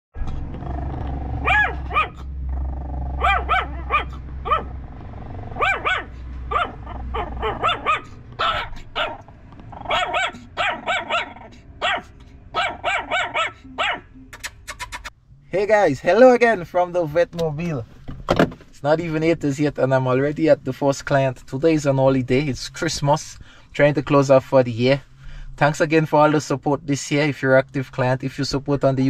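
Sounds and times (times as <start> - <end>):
puppies yapping: 1.2 - 4.8, 5.4 - 15.1.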